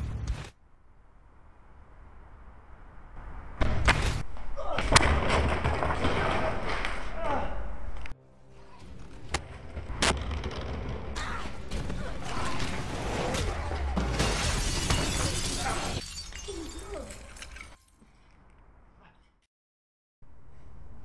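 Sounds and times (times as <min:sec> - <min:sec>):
glass shattering: 0:12.5 - 0:18.2.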